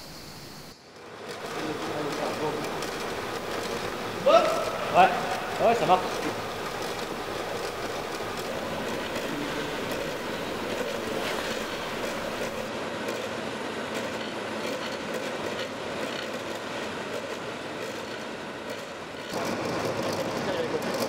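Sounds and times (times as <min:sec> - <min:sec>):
stone-cutting saw running: 0:00.0 - 0:12.7.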